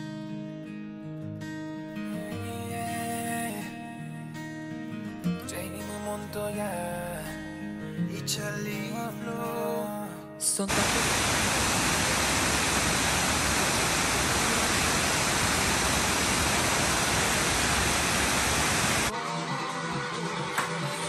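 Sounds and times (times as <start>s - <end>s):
waterfall rushing: 10.7s - 19.1s.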